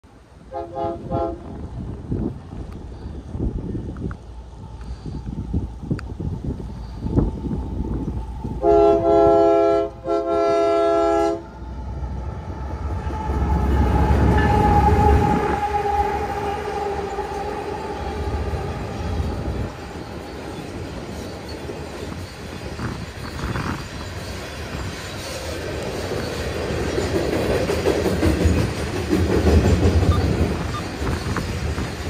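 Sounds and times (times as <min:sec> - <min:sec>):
locomotives passing with low rumble: 0:00.0 - 0:32.0
train cars rolling: 0:00.0 - 0:32.0
train air horn blasts: 0:00.4 - 0:01.7, 0:08.5 - 0:19.8.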